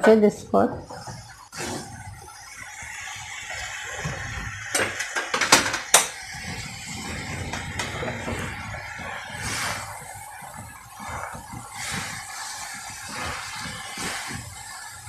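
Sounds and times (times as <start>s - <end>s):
sizzling hiss: 0.0s - 15.0s.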